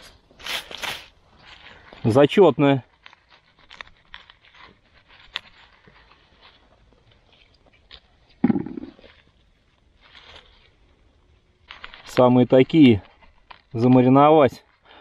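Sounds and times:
leaf litter rustling and crackling: 0:00.0 - 0:15.0.

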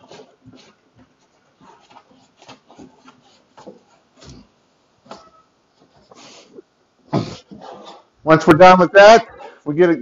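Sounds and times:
plastic rubbing and scraping: 0:00.0 - 0:04.5.

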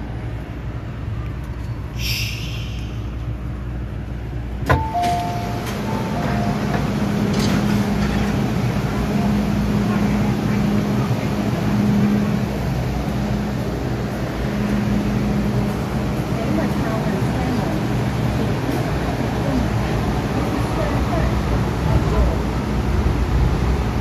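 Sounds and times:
train carriage rumble: 0:00.0 - 0:24.0
two-note chime: 0:04.8 - 0:06.7.

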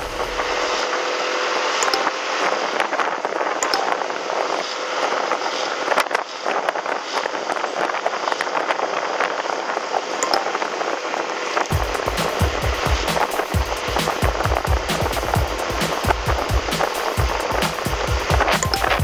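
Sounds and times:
scooter engine: 0:00.0 - 0:03.1, 0:11.0 - 0:19.0
wind and road noise: 0:00.0 - 0:19.0.

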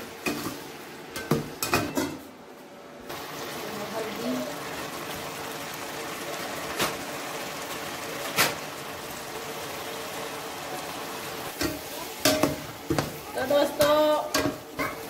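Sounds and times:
chicken frying in oil: 0:03.1 - 0:15.0.

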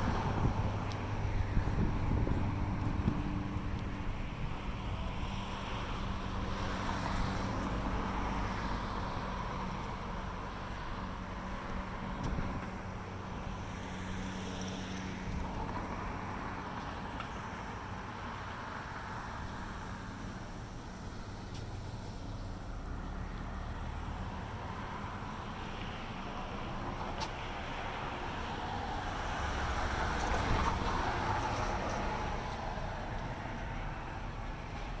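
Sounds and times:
road traffic rushing: 0:00.0 - 0:35.0.

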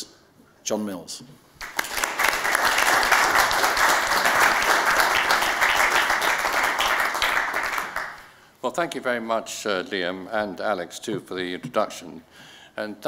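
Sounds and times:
audience applauding: 0:01.6 - 0:08.3.

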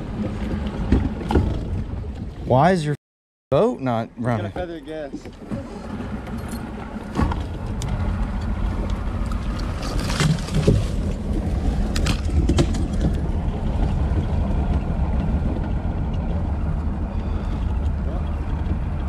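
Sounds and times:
outboard motor running: 0:04.2 - 0:19.0.

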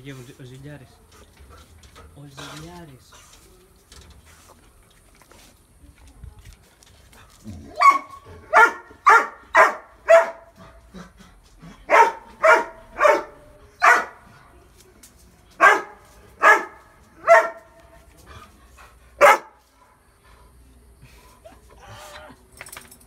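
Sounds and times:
dog barking: 0:07.8 - 0:10.6, 0:11.9 - 0:14.2, 0:15.6 - 0:17.8, 0:19.2 - 0:19.6.

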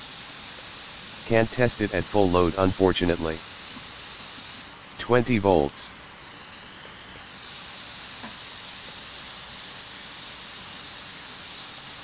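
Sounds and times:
cooling fan hissing: 0:00.0 - 0:12.0.

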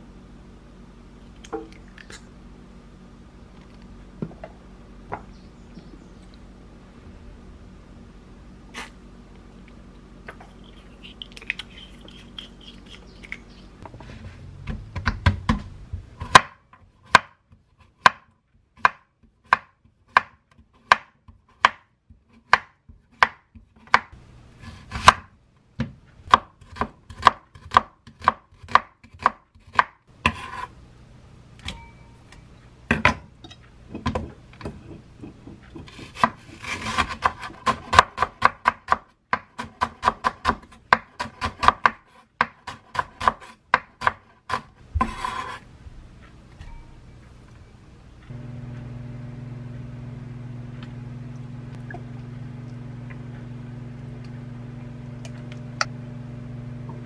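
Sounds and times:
knife chopping on wooden board: 0:14.7 - 0:17.4, 0:18.0 - 0:21.8, 0:22.4 - 0:24.1, 0:24.7 - 0:30.7, 0:33.9 - 0:45.6.

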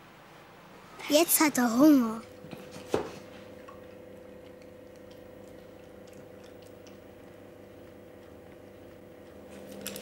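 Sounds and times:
low electrical hum: 0:00.0 - 0:10.0
dog lapping from metal bowl: 0:03.5 - 0:10.0.

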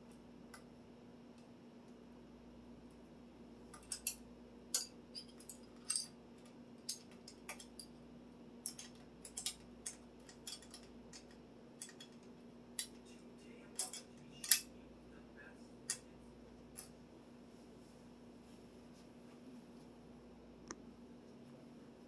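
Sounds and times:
faint steady hum: 0:00.0 - 0:22.0
metallic clicks and clinks: 0:03.7 - 0:08.0, 0:08.6 - 0:13.0, 0:13.8 - 0:14.7.

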